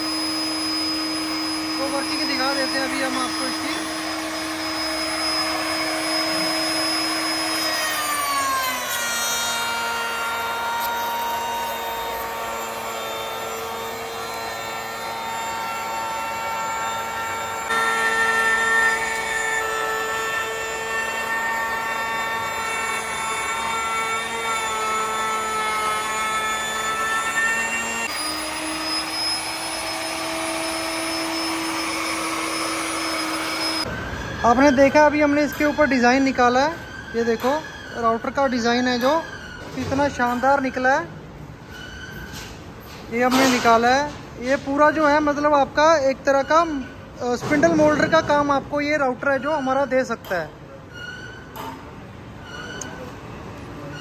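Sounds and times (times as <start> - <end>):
router whining cutting wood: 0.0 - 35.0.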